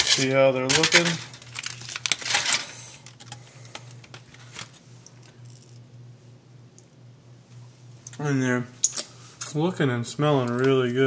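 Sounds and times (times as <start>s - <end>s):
aluminium foil crinkling: 0.0s - 5.8s
low steady hum: 0.0s - 11.0s.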